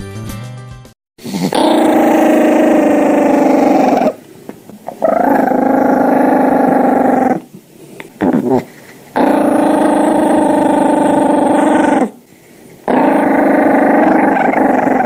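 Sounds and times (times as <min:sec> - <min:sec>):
dog growling: 0:01.2 - 0:04.2, 0:04.9 - 0:07.5, 0:08.2 - 0:12.2, 0:12.8 - 0:15.0.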